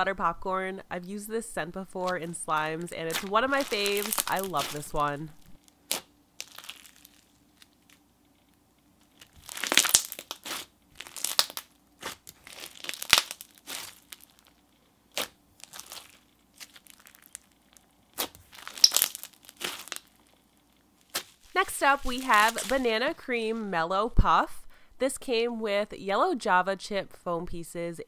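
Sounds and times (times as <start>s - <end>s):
slime crunching and crackling: 2.0s - 8.1s, 9.0s - 23.2s.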